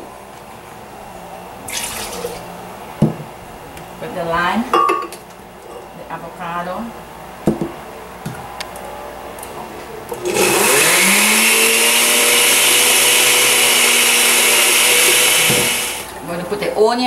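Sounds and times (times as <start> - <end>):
blender motor running: 10.2 - 16.1.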